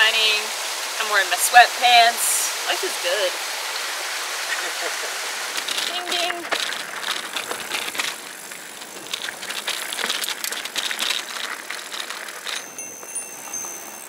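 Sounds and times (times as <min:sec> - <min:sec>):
tyres crunching over stones: 0:04.5 - 0:14.0
bike frame and bags clattering: 0:05.5 - 0:14.0
high thin bell-like ringing: 0:12.5 - 0:14.0.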